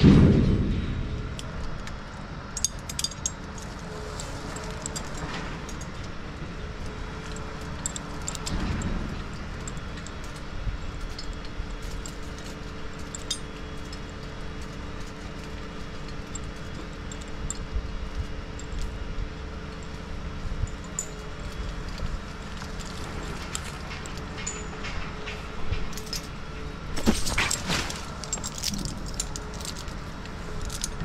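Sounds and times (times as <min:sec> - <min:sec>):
crane engine running: 0:00.0 - 0:31.0
engine rumble: 0:00.0 - 0:31.0
light metallic clinks: 0:02.6 - 0:06.2, 0:19.6 - 0:26.3, 0:27.0 - 0:31.0.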